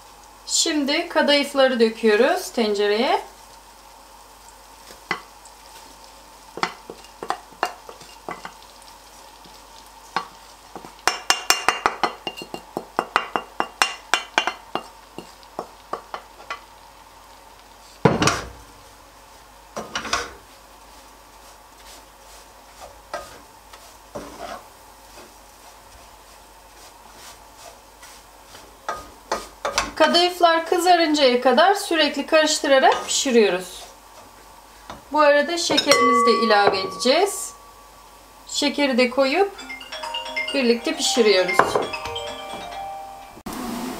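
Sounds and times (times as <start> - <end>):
faint sizzle: 0.0 - 43.9
spatula tapping and scraping pan: 4.9 - 5.3, 6.5 - 8.7, 9.4 - 16.7, 19.8 - 20.4, 21.8 - 26.1, 26.7 - 30.2, 32.8 - 33.2, 34.9 - 37.5, 40.5 - 42.8
spatula knocking on pan: 6.6 - 8.6, 10.2 - 16.6, 28.9 - 30.0, 35.7 - 37.5, 40.5 - 42.7.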